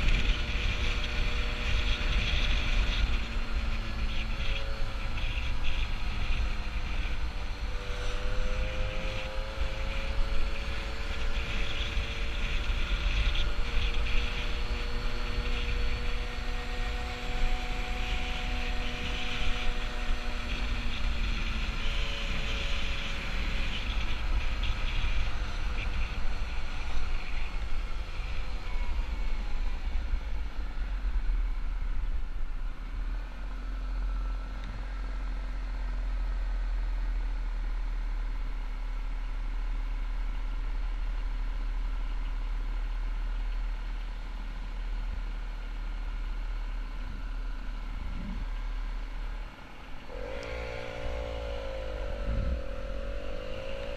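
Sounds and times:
wind noise on microphone: 0.0s - 35.1s, 50.0s - 53.9s
moped engine running: 38.8s - 53.9s.

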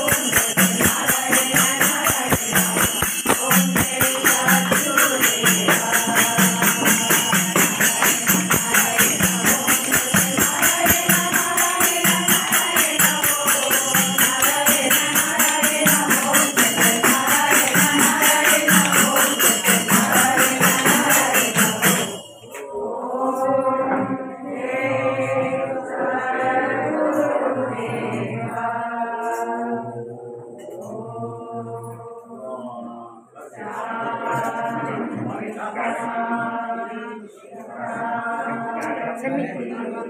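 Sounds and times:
jingling tambourine: 0.0s - 23.5s
group chanting: 0.0s - 40.0s
group singing devotional song: 0.0s - 40.0s.

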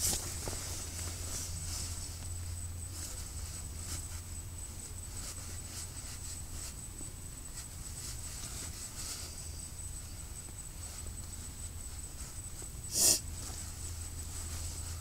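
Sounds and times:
fabric and gear rustling: 0.0s - 9.4s
steady low hum: 0.0s - 15.0s
thin high whine: 0.0s - 15.0s.

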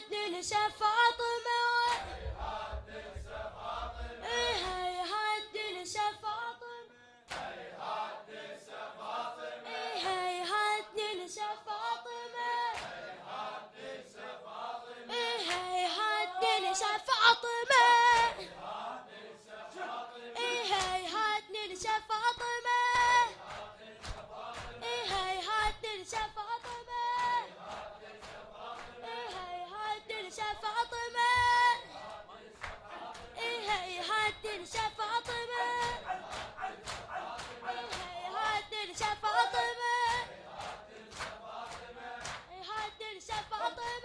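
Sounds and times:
men chanting a lament: 2.0s - 4.8s, 7.2s - 10.2s, 12.8s - 17.1s, 18.3s - 20.9s, 23.3s - 25.1s, 27.4s - 29.5s, 31.8s - 33.8s, 34.6s - 42.5s.

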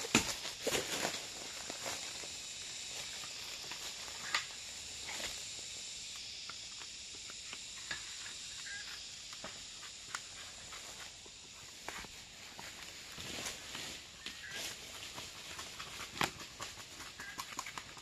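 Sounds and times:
steady high hiss: 0.0s - 15.3s.

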